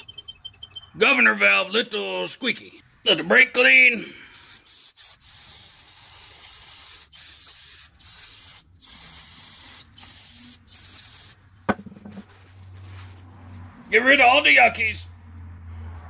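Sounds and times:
linkage squeaking: 0.0 - 1.3
aerosol can spraying: 4.3 - 11.4.

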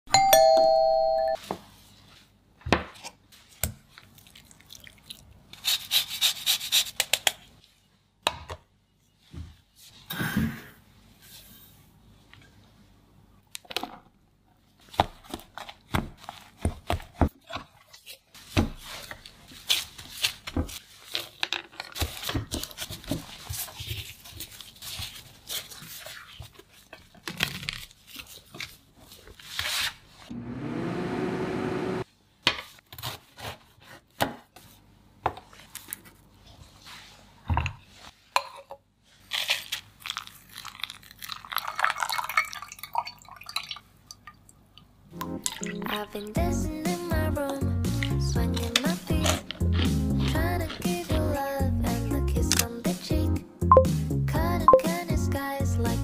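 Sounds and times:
short pitched chime: 0.1 - 1.4
hands kneading dough on board: 14.8 - 21.2.

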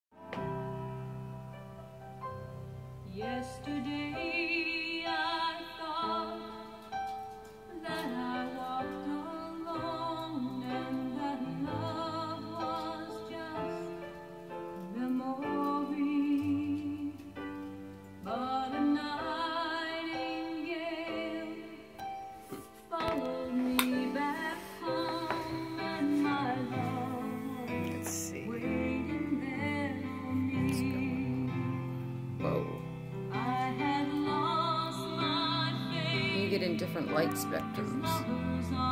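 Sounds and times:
long held instrumental notes: 0.2 - 38.9
woman singing with vibrato: 3.1 - 6.9, 7.7 - 14.0, 22.8 - 31.8, 33.3 - 38.9.

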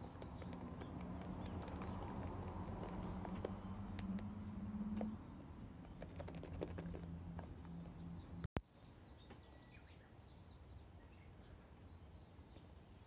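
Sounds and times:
plastic container being shaken: 6.0 - 7.0.

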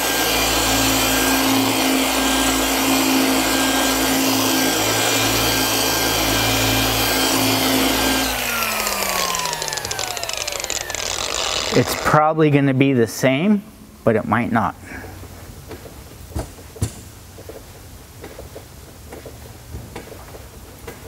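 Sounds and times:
electric polisher running: 0.0 - 12.2
polisher motor spinning down: 0.0 - 12.4.

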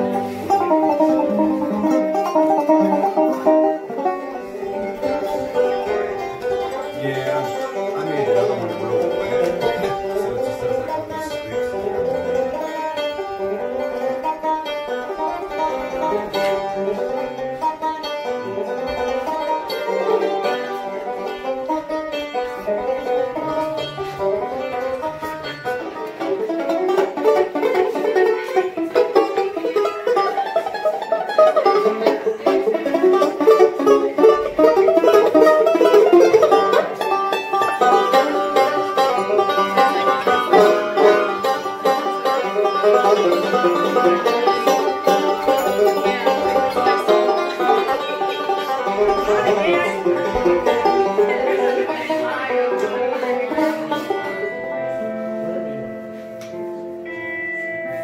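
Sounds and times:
banjo being picked: 0.0 - 58.0.

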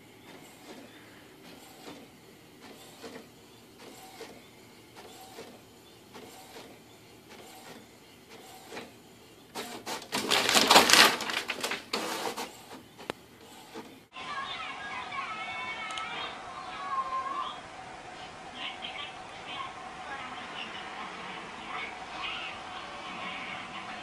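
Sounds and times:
inkjet printer printing: 0.0 - 24.0
loud rustling clatter: 9.7 - 12.5.

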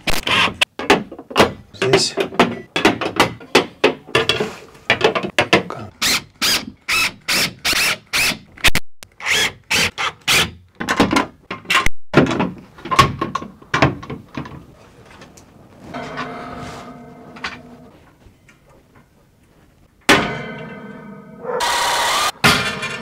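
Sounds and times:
hand tool scraping: 15.8 - 18.0
ringing tones: 15.9 - 18.0.

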